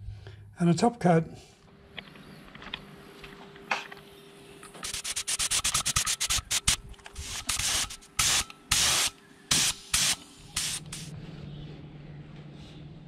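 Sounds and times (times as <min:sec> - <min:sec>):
spray gun hissing bursts: 0:04.9 - 0:11.1.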